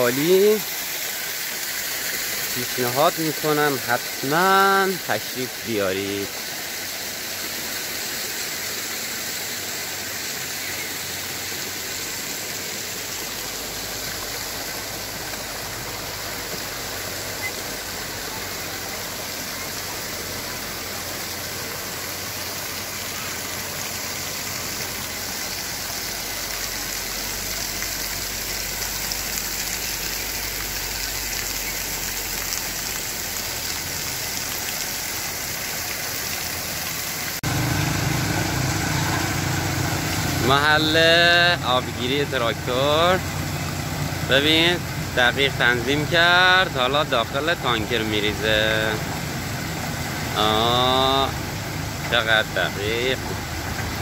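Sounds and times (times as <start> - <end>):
waterfall splashing onto stones: 0.0 - 54.0
engine running: 37.4 - 46.4.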